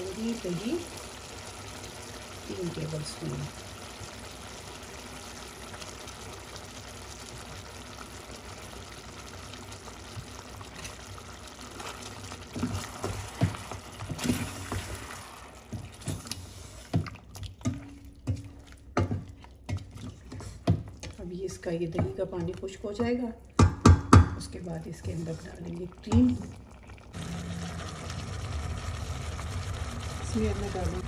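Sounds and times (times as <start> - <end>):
food sizzling in a pot: 0.0 - 17.0, 25.0 - 31.0
wooden spoon scraping pot: 11.7 - 23.2, 24.8 - 26.4.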